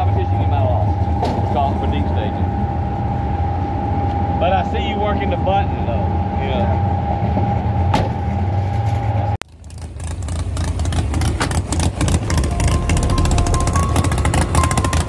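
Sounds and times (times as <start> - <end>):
engines running: 0.0 - 15.0
truck engine idling rough: 9.4 - 15.0.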